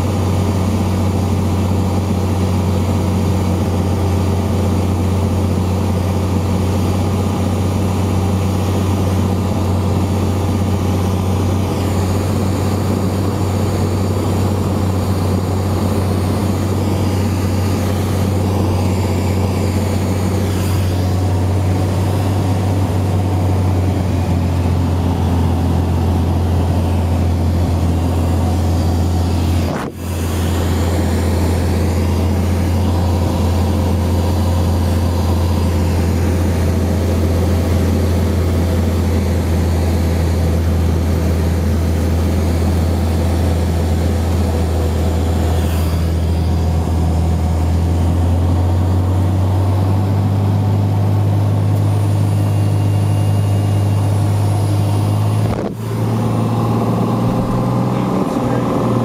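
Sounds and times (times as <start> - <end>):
propeller plane engine droning: 0.0 - 59.0
cabin airflow noise: 8.7 - 37.0, 51.7 - 59.0.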